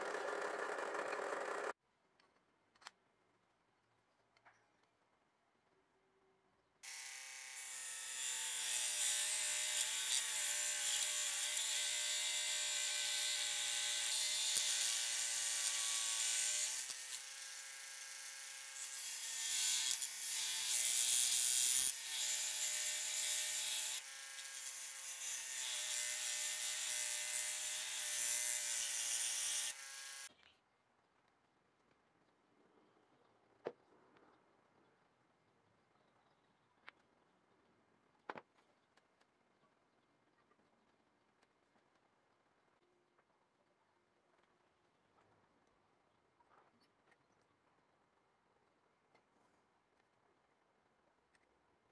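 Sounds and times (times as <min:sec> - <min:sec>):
scroll saw cutting wood: 0:00.0 - 0:01.8, 0:06.8 - 0:30.3.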